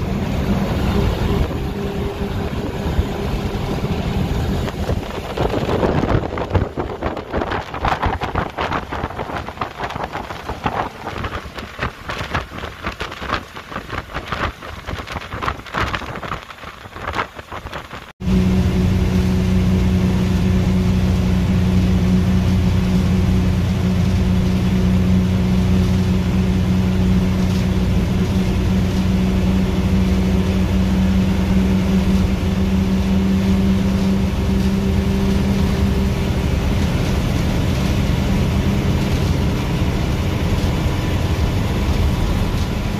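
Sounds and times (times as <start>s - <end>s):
steady low hum: 0.0s - 12.2s
bus engine droning: 0.0s - 42.9s
road noise: 0.0s - 42.9s
wind buffeting at window: 0.0s - 42.9s.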